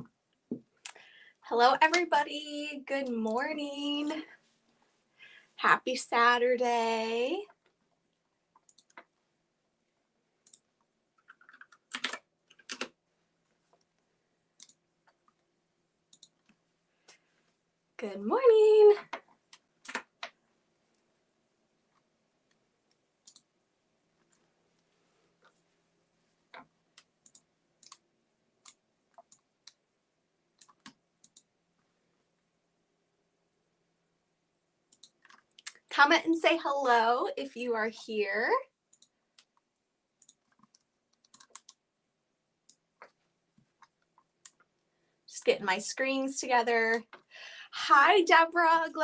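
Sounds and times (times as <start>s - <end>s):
computer keystrokes and mouse clicks: 8.5s - 9.1s, 10.4s - 13.0s, 14.6s - 15.4s, 16.1s - 16.6s, 19.1s - 20.4s, 21.9s - 23.5s, 26.5s - 28.0s, 28.6s - 29.8s, 30.6s - 31.5s, 34.9s - 35.8s, 38.9s - 41.8s, 42.6s - 44.7s.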